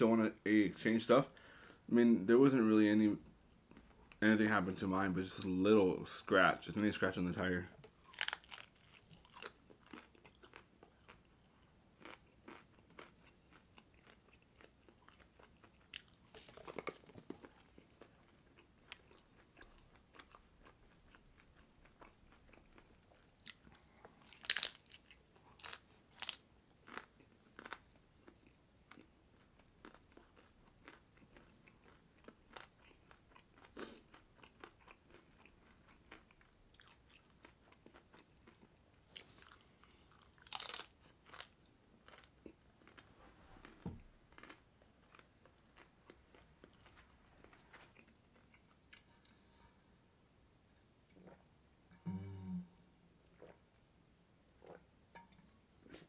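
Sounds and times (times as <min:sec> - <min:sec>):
person chewing crunchy food: 0:07.8 - 0:49.6.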